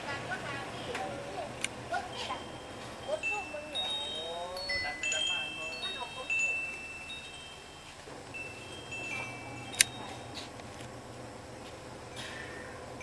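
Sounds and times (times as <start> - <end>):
wind chimes ringing: 1.8 - 10.6.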